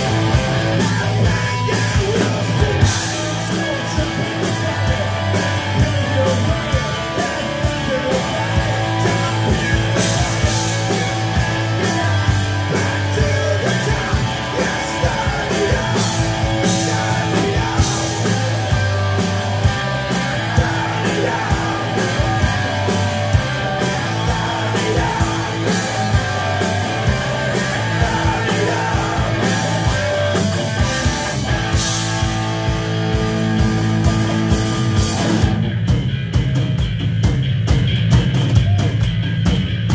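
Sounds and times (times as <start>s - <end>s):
bass guitar: 0.0s - 39.9s
distorted electric guitars: 0.0s - 39.9s
drum kit: 0.0s - 39.9s.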